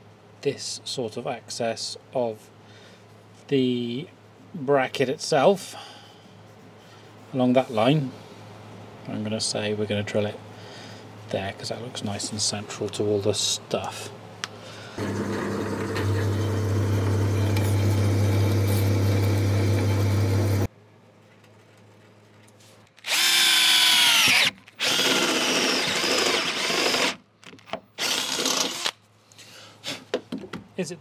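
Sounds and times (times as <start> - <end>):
power drill boring into steel: 23.0 - 27.2, 28.0 - 29.0.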